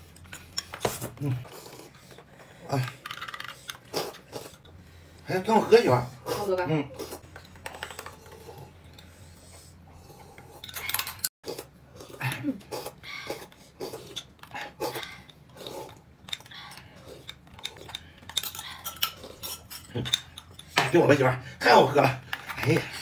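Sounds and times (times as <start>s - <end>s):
utensils clinking on dishes: 10.4s - 11.3s, 16.2s - 21.3s.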